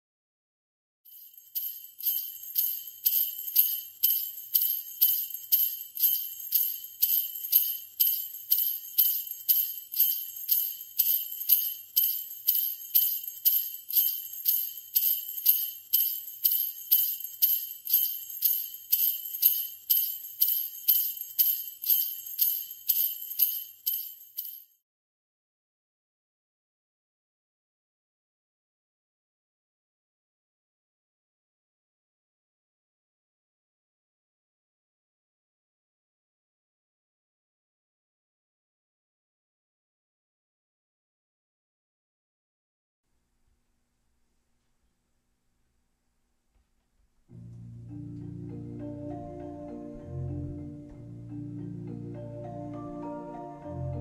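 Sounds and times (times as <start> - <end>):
sleigh bells jingling: 1.1 - 24.8.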